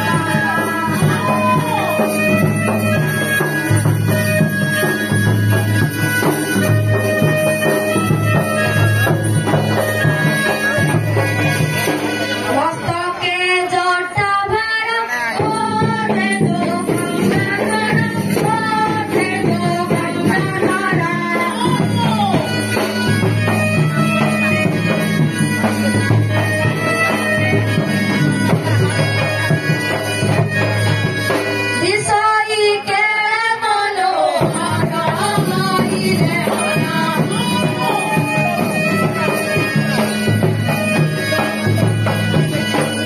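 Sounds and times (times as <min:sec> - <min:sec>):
jingling percussion: 0:00.0 - 0:13.5, 0:14.5 - 0:43.0
drums: 0:00.0 - 0:43.0.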